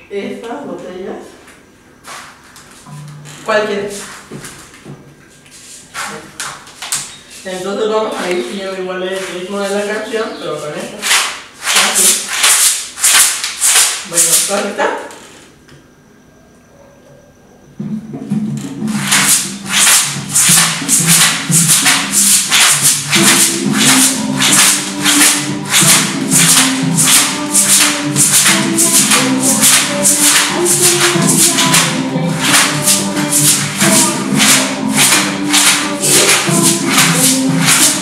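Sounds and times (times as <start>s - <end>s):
plastic bottle shakers shaken: 11.0s - 14.6s, 19.0s - 38.0s
song playing: 18.8s - 38.0s.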